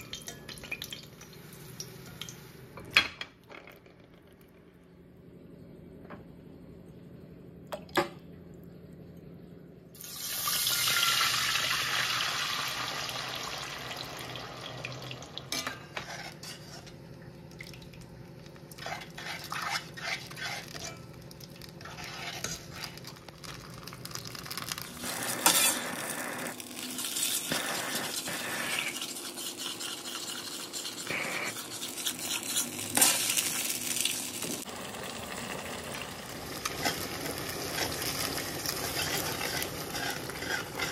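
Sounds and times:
metal spoon stirring in pan: 0:15.5 - 0:17.0, 0:18.7 - 0:24.0, 0:25.0 - 0:26.4, 0:27.0 - 0:34.0, 0:36.6 - 0:40.9.

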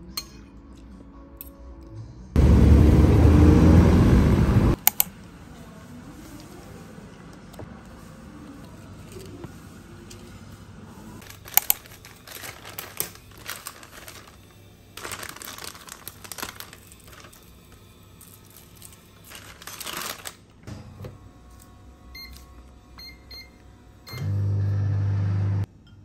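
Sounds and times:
scissors cutting plastic package: 0:11.2 - 0:20.4
plastic rustling: 0:11.2 - 0:20.6
microwave keypad beeps: 0:22.2 - 0:22.4, 0:23.0 - 0:24.5.

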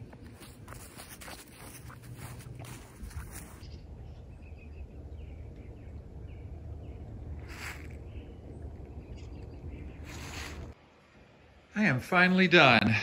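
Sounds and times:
steady low rumble: 0:01.6 - 0:11.8.

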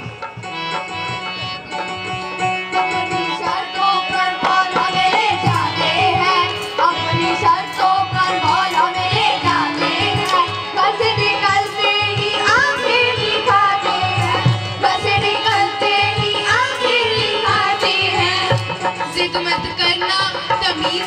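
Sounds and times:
hand drums playing rhythm: 0:00.0 - 0:21.0
children singing: 0:03.1 - 0:18.7.

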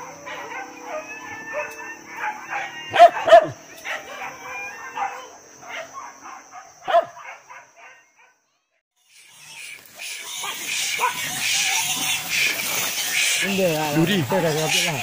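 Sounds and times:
hunting dogs barking and yelping: 0:00.0 - 0:08.4, 0:09.0 - 0:15.0
loud dog barks: 0:00.0 - 0:08.4, 0:10.3 - 0:12.2.

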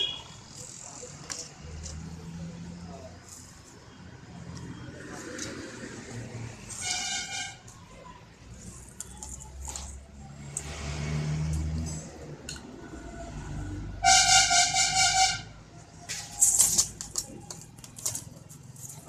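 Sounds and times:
motor vehicle rumbling past: 0:09.6 - 0:14.0.

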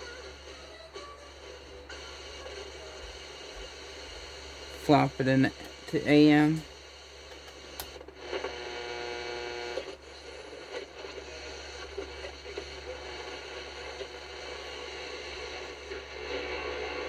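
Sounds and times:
radio static and hiss: 0:00.0 - 0:17.0
steady buzzing tone: 0:02.4 - 0:10.0.

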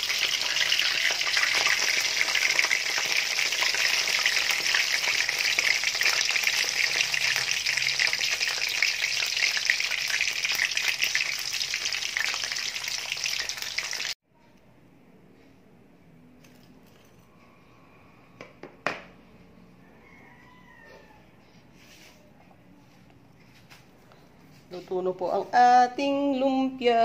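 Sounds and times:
spring rolls sizzling in oil: 0:00.0 - 0:14.2.

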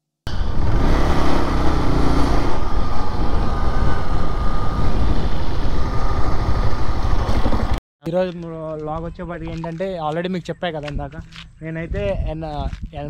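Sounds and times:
motorcycle engine: 0:00.3 - 0:07.8
wind rush on microphone: 0:00.3 - 0:07.8, 0:10.9 - 0:13.0.

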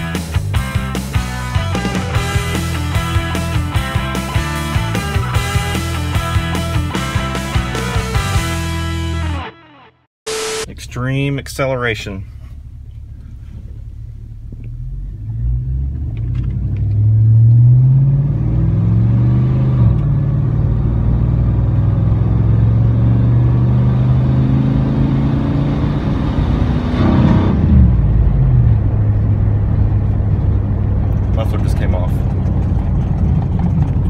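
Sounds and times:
truck exhaust under acceleration: 0:10.7 - 0:34.0.

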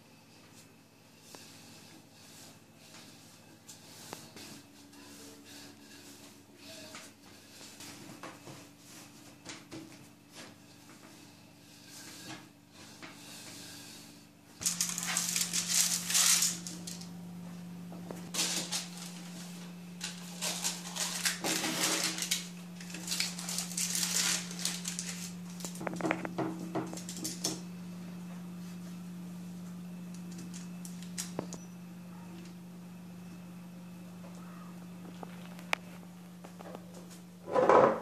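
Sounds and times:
steady low hum: 0:00.0 - 0:38.0
baking paper rustling: 0:14.6 - 0:27.6, 0:30.2 - 0:31.5.

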